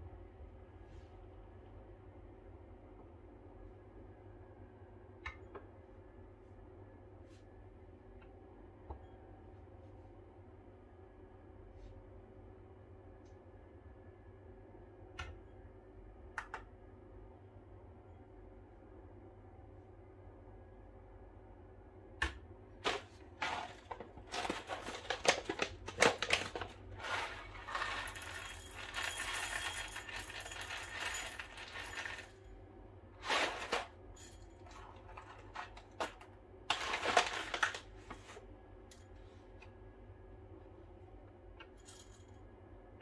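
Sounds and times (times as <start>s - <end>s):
bag crinkling: 22.8s - 29.5s
coffee beans rattling into bowl: 22.8s - 32.4s, 33.2s - 34.0s, 34.7s - 37.9s.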